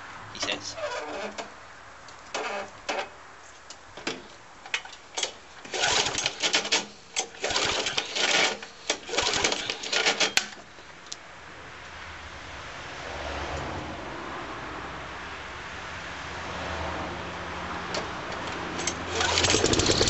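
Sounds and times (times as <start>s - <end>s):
recoil starter cord pulls: 4.7s - 10.6s, 18.8s - 20.0s.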